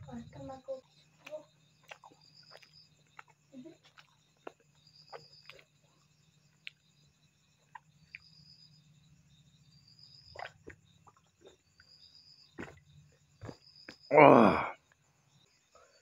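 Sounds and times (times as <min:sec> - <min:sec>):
gulping and swallowing: 0:10.3 - 0:11.9, 0:12.6 - 0:14.7.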